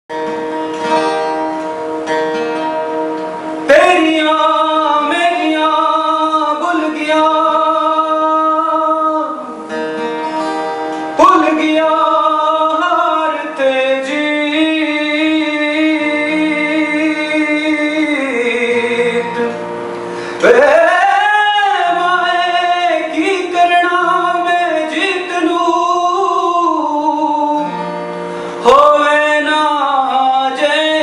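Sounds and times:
acoustic guitar strumming: 0.1s - 31.0s
man singing: 3.6s - 9.8s, 11.2s - 19.6s, 20.4s - 27.8s, 28.6s - 31.0s.

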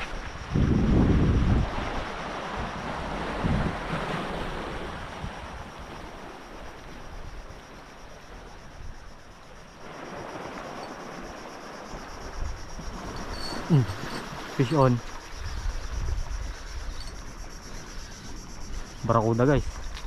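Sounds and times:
wind buffeting microphone: 0.0s - 7.8s, 9.9s - 17.6s.

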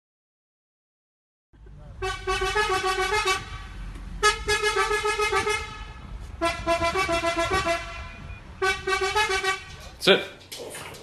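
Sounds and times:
fuel nozzle hooting: 1.9s - 10.0s.

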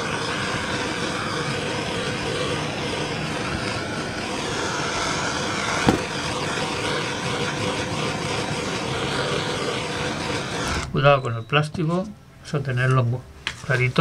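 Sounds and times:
blowtorch hissing: 0.0s - 11.2s.

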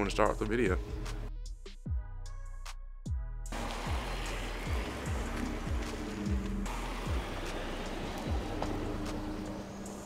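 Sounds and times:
steady hiss: 3.6s - 10.0s.

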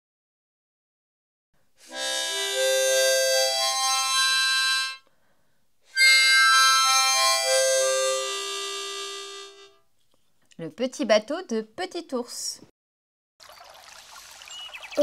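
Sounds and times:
free-reed instrument playing held notes: 1.8s - 5.0s, 6.0s - 9.8s.

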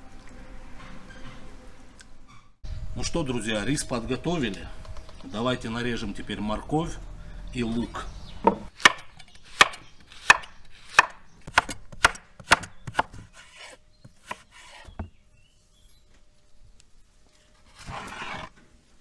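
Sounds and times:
knife chopping on wooden board: 9.6s - 15.1s.

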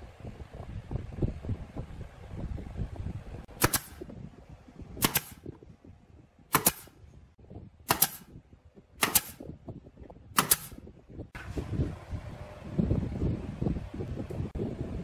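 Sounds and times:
nail gun firing: 3.6s - 4.1s, 5.0s - 5.5s, 6.5s - 7.0s, 7.8s - 8.4s, 9.0s - 9.5s, 10.3s - 10.8s.

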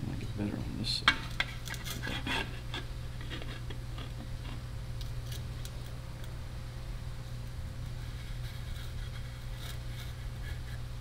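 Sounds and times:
steady low hum: 0.0s - 11.0s
small clicks and scrapes: 1.3s - 6.3s, 7.8s - 10.8s.

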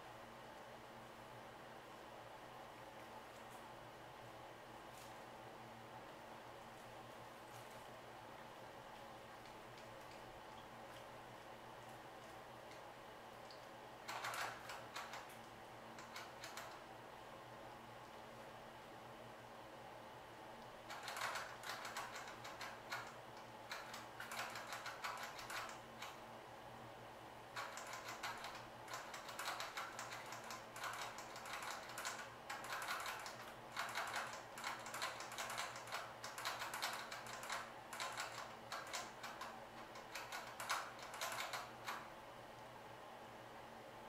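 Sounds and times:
rat crackling and clicking: 8.9s - 16.9s, 20.6s - 26.2s, 27.5s - 42.7s.

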